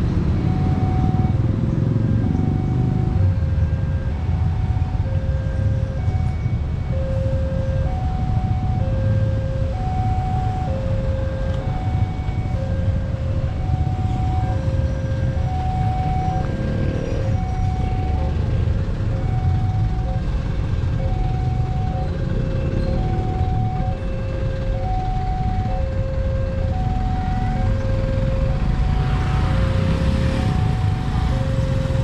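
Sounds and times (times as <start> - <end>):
vehicle engines rumbling: 0.0 - 32.0.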